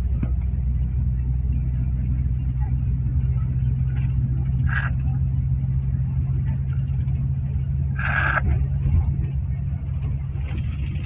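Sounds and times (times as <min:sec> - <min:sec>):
vehicle engine and tyre drone: 0:00.0 - 0:11.0.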